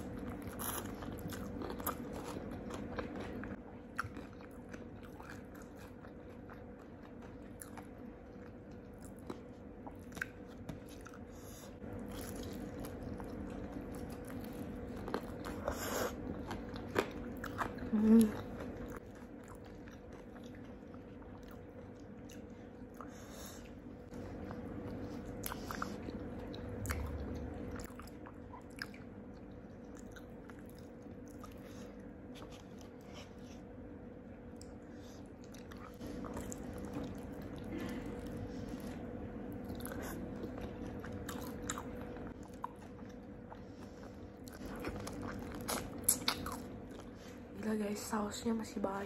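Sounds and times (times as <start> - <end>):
biting and chewing crispy food: 0.0 - 23.3, 35.4 - 47.3
faint steady hum: 0.0 - 49.0.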